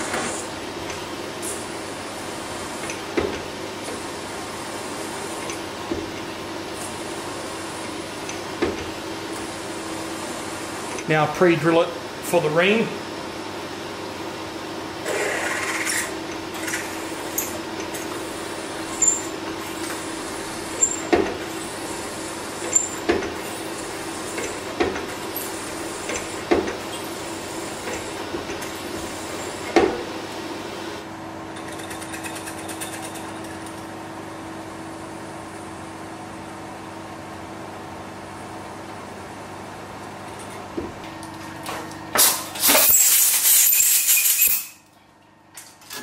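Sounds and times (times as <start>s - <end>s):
milling machine spindle humming: 0.0s - 31.2s
high squeals from cutting: 42.7s - 44.7s.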